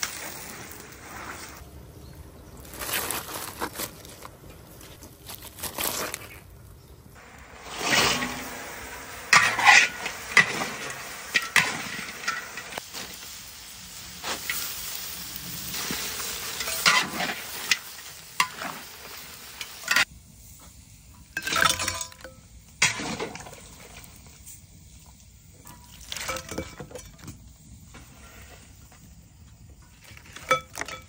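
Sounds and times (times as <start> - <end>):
crabs sizzling in a wok: 0.0 - 1.6, 6.9 - 31.0
metal spatula scraping a pan: 7.4 - 12.8, 16.5 - 19.2.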